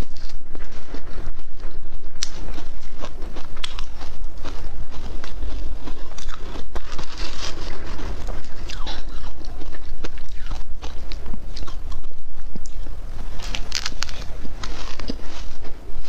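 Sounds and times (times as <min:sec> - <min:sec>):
shaved ice crunching: 0:01.6 - 0:11.9, 0:13.3 - 0:15.6.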